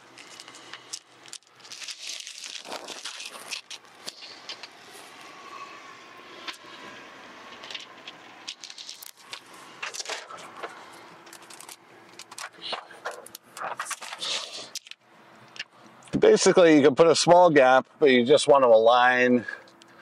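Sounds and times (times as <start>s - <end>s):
plastic film crinkling: 0.0s - 4.7s, 7.6s - 15.0s
small clicks and scrapes: 0.0s - 5.3s, 7.5s - 15.9s.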